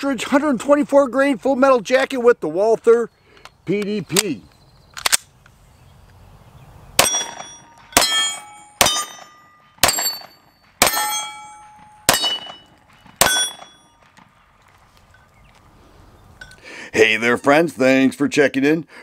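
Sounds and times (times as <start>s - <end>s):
steel target clanging: 7.0s - 14.1s
pistol shots: 7.0s - 14.4s.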